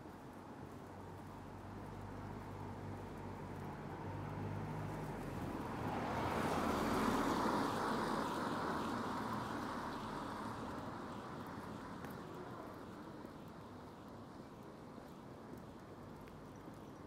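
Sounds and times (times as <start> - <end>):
car tyres hissing on wet road: 0.7 - 13.8.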